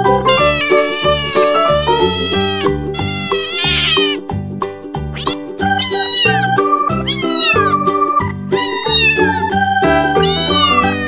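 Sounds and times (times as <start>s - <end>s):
kitten meowing: 0.1s - 4.2s, 5.1s - 7.9s, 8.5s - 9.4s, 10.2s - 11.0s.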